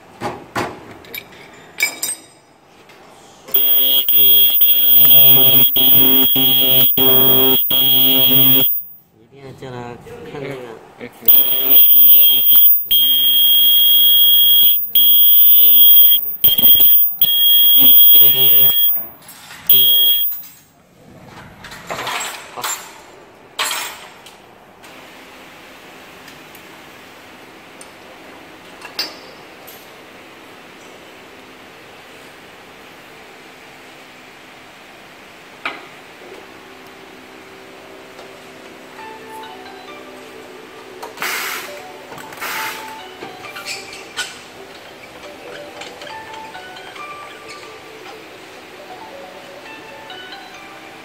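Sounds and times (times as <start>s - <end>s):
ultrasonic welder high buzzing: 3.5s - 8.9s, 11.3s - 20.4s.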